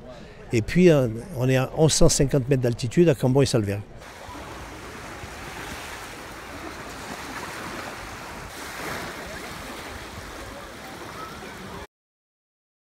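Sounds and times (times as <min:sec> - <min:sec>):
small waves on sandy beach: 0:04.0 - 0:11.9.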